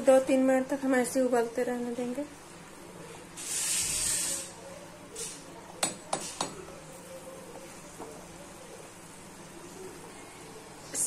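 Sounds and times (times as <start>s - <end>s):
soup boiling quietly: 2.3s - 11.0s
hiss: 3.4s - 4.6s.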